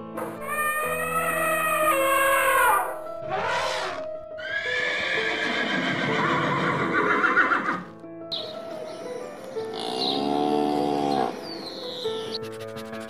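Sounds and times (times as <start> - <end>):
background music: 0.0 - 13.0
elephant trumpeting: 0.4 - 6.4.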